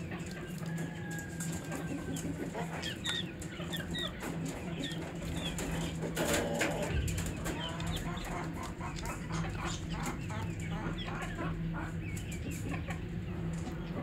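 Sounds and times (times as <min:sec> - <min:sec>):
chicks peeping: 0:00.0 - 0:14.0.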